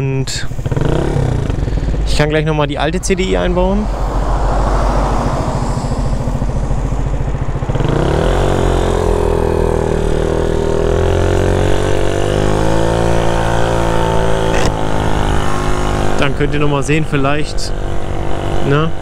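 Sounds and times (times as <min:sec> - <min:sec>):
scooter engine revving: 0:00.5 - 0:02.2, 0:04.9 - 0:16.5, 0:17.7 - 0:19.0.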